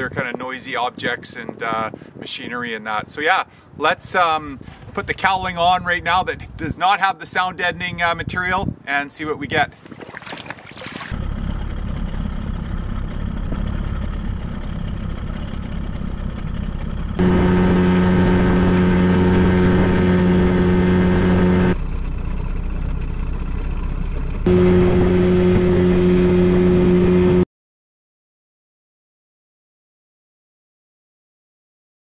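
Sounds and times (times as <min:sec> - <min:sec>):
outboard motor idling and droning: 0:11.1 - 0:27.4.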